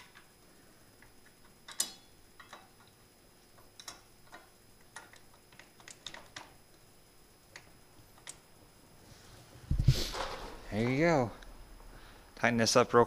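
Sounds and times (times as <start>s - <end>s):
metal pieces clicking and knocking: 1.6s - 2.9s.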